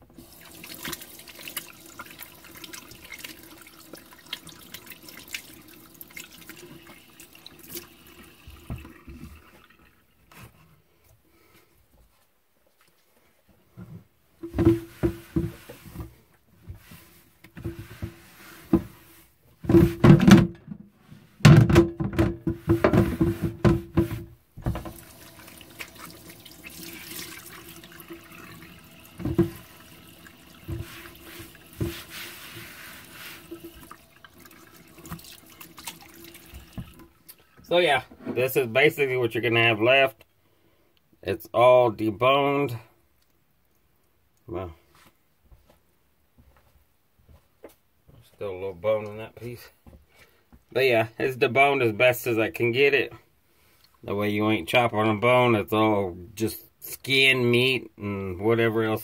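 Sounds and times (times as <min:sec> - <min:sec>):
faucet running into steel sink: 0:00.1 - 0:10.0, 0:24.7 - 0:37.5
water splashing: 0:00.2 - 0:09.8, 0:24.6 - 0:37.5
hands rubbing under water: 0:30.7 - 0:34.0.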